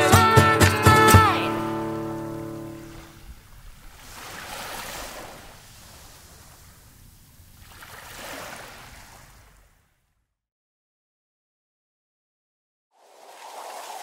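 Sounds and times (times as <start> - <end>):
sea waves washing onto beach: 1.2 - 9.7, 13.0 - 14.0.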